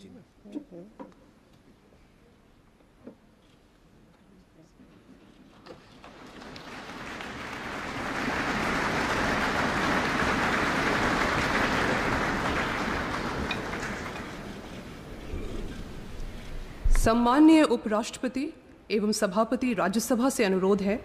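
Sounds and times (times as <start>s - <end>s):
large audience applauding: 5.8s - 15.3s.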